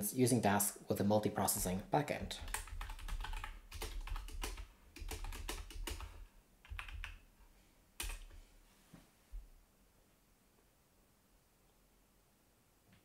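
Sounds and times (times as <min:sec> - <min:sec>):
typing on computer keyboard: 0:02.3 - 0:07.2, 0:08.0 - 0:08.4.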